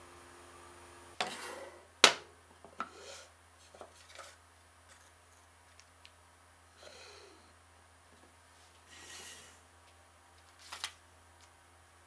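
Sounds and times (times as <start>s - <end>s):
wooden lid sliding: 1.2s - 1.8s.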